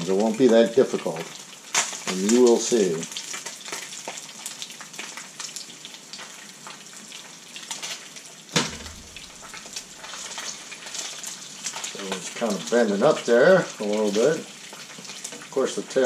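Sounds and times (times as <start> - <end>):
fish sizzling in hot oil: 0.0 - 16.0
metal splatter screen clank: 8.6 - 10.6.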